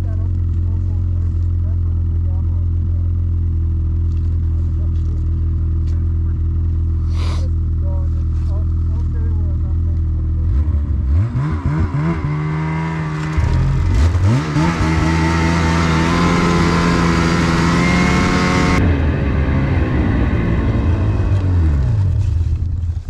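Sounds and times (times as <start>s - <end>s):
snowmobile engine revving: 10.3s - 22.6s.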